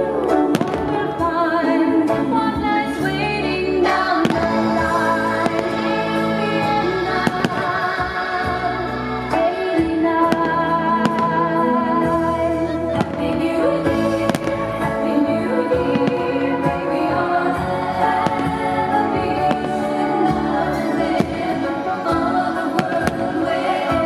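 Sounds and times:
loud music with singing: 0.0 - 24.0
fireworks bursting: 4.2 - 8.4, 13.0 - 15.0, 15.7 - 24.0.

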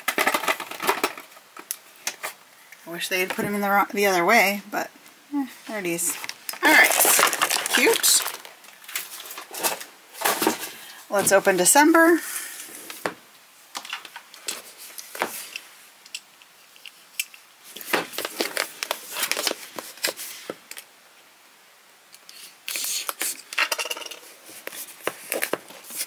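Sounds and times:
packaging rustling: 0.0 - 2.4, 6.1 - 11.6, 17.7 - 20.9, 24.2 - 26.0.

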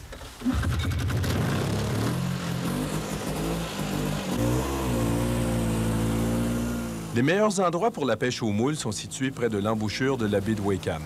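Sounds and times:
snowmobile engine revving: 0.4 - 7.6.

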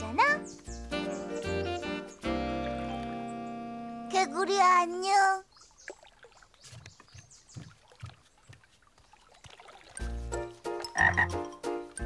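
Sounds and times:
cartoon frog croaking: 10.9 - 11.4.

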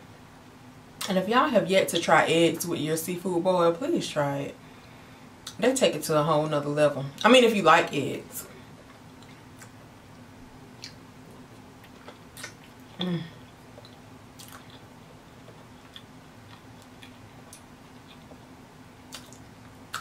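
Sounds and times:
person chewing with wet clicks: 8.8 - 20.0
person humming mm: 13.0 - 13.4.

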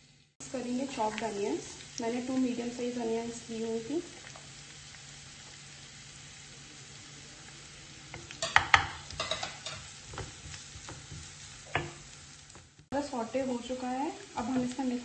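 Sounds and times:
onions sizzling faintly in oil: 0.0 - 15.0
wooden spatula scraping pan: 8.2 - 12.7, 14.2 - 15.0.

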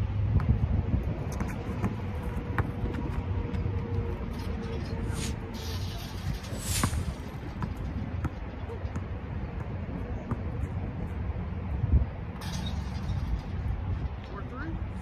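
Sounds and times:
basketball dribbling on asphalt: 0.0 - 4.2, 7.2 - 11.6
wind rumbling on microphone: 0.0 - 15.0.

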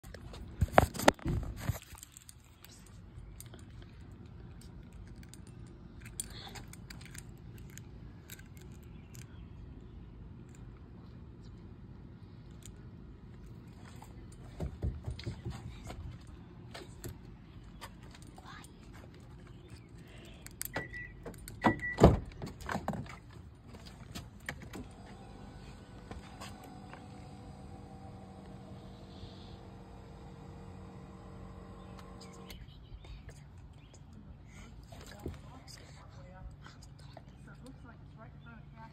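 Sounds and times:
faint steady hum: 0.0 - 22.3, 23.5 - 38.9
low steady rumble: 0.0 - 38.9
car lock clicks with beeps: 20.7 - 22.3.

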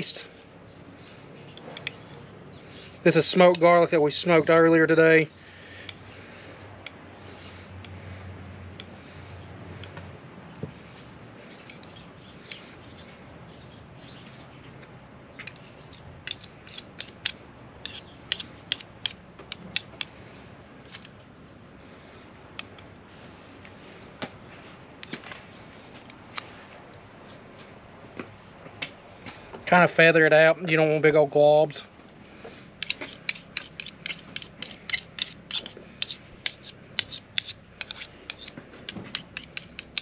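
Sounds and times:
knife clicking on steel bowl: 32.8 - 40.0.

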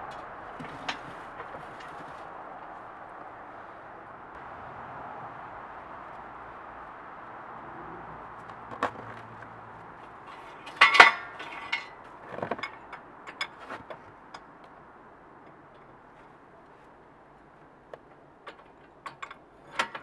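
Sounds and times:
light metal clinks and clicks: 10.2 - 14.8.

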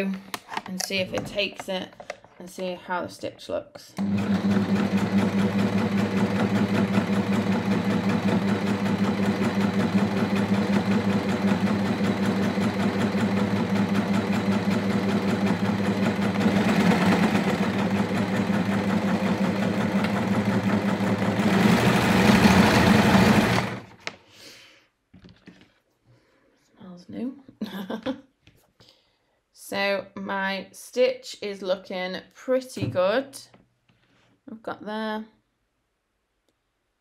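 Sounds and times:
sewing machine stitching: 4.0 - 24.0.

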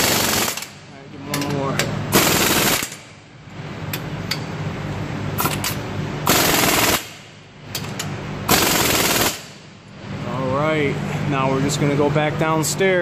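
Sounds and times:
air impact wrench hammering: 0.0 - 3.3, 5.4 - 9.8.

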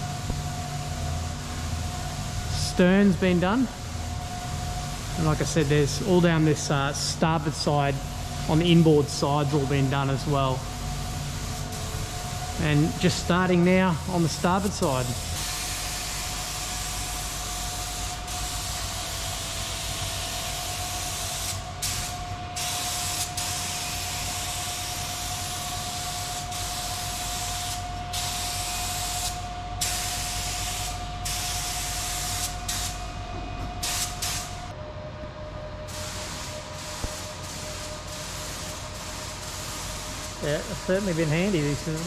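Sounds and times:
machine hum: 0.0 - 42.0
paint spray gun hissing: 8.5 - 33.0.

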